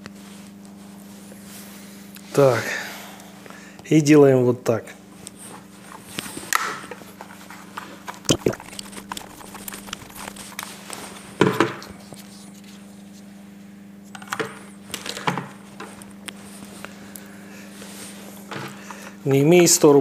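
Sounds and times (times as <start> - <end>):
steady low hum: 8.3 - 11.4.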